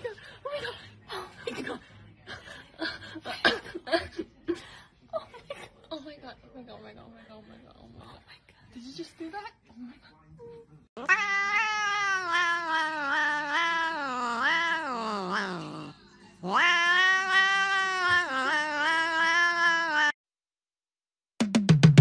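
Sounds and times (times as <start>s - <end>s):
cat yowling: 11.0s - 20.2s.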